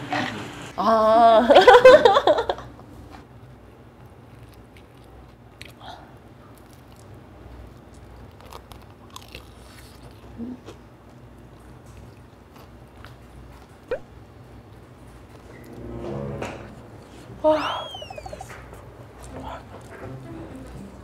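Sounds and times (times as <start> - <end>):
biting and chewing food: 4.0 - 14.0
low steady hum: 9.6 - 21.0.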